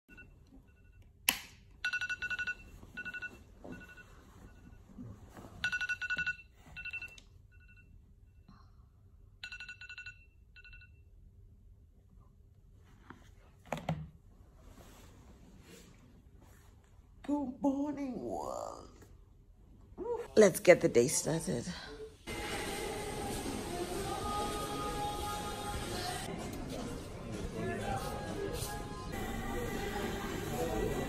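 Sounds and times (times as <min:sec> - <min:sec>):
phone alarm beeping: 0:01.8 - 0:04.8, 0:05.6 - 0:08.0.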